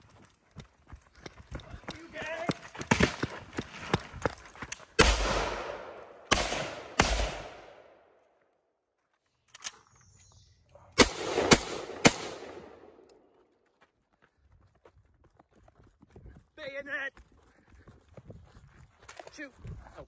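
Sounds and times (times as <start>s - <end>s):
rifle shots with long echo: 5.0s - 8.2s, 11.0s - 13.1s.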